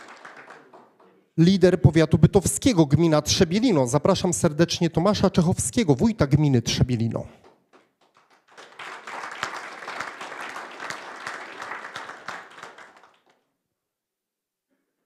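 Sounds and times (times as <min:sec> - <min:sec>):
audience applauding: 0:00.0 - 0:01.2, 0:07.4 - 0:13.5.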